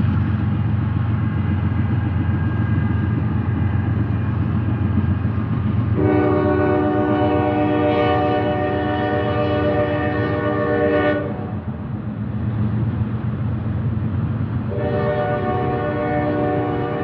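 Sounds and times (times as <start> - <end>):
train rumbling past: 0.0 - 17.0
train horn blast: 6.0 - 11.6, 14.7 - 17.0.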